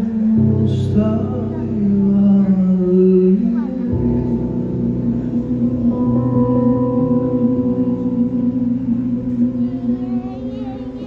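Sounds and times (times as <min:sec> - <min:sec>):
man singing: 0:00.0 - 0:04.6
piano chord: 0:00.0 - 0:11.0.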